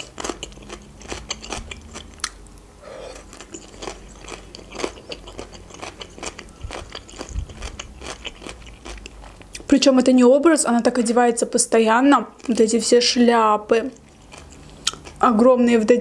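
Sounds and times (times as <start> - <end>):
person chewing crunchy food: 0.0 - 9.7, 13.9 - 15.2.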